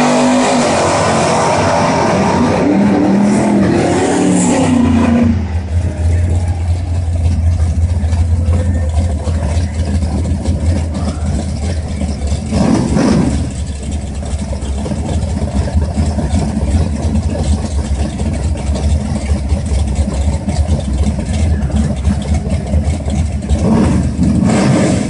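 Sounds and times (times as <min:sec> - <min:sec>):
car engine revving: 0:00.0 - 0:25.0
car engine idling: 0:04.7 - 0:25.0.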